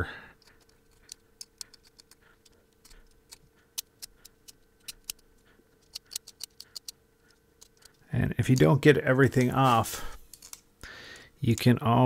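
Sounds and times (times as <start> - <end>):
razor blade scratching wire: 0.5 - 5.2, 5.8 - 7.0.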